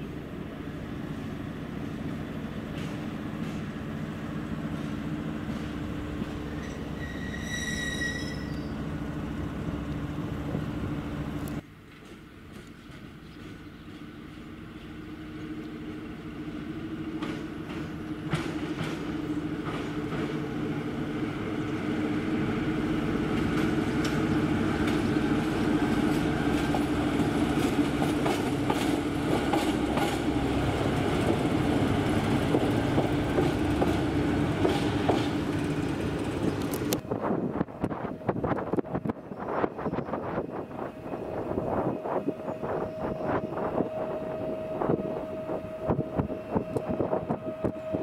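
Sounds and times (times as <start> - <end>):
electric locomotive humming: 0.0 - 48.0
train wheels clicking on rails: 1.8 - 7.3, 11.4 - 14.5, 17.0 - 21.0, 21.6 - 37.1.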